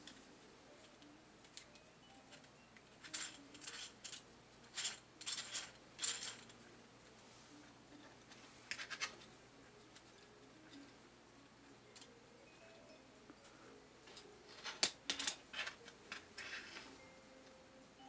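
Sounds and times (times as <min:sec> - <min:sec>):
plastic gears clicking and scraping: 0:03.0 - 0:06.6.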